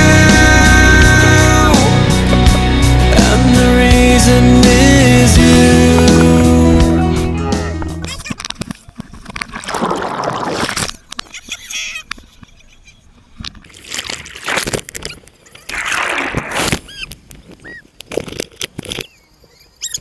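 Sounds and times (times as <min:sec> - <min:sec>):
seawater splashing: 0:13.2 - 0:16.9
short high squeaks: 0:14.9 - 0:17.9, 0:18.9 - 0:20.0.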